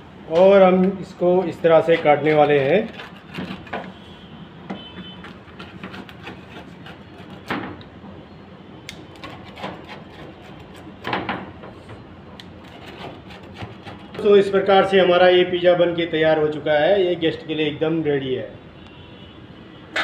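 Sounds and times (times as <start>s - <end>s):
pizza cutter slicing crust: 0.4s - 4.0s, 5.0s - 7.6s, 9.1s - 11.1s, 12.5s - 14.3s.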